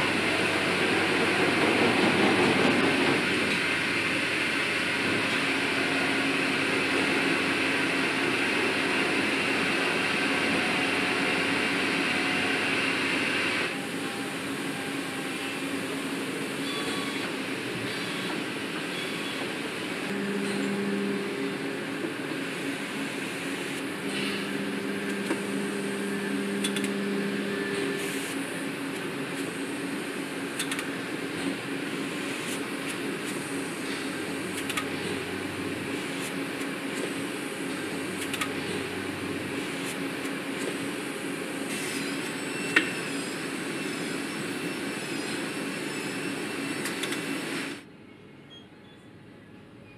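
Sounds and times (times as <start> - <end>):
factory machinery hum: 0.0 - 49.9
loud steady motor tone: 3.7 - 17.8, 20.0 - 29.0, 37.2 - 39.8.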